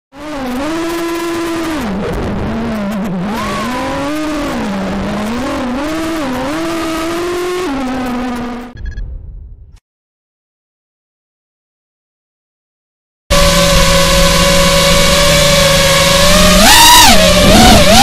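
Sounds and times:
quadcopter motors whining: 0.3s - 8.7s, 13.3s - 18.0s.

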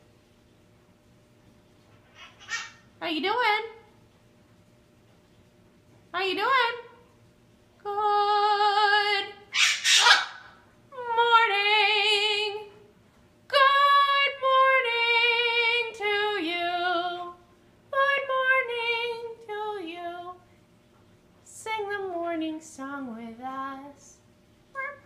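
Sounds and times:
macaw squawk: 2.0s - 2.9s, 9.5s - 10.5s
macaw calling: 2.1s - 2.8s, 9.5s - 10.5s.

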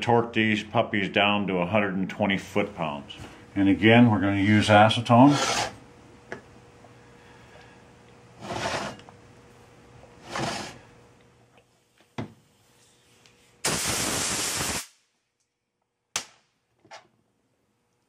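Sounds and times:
loud steady hiss: 13.6s - 15.1s.

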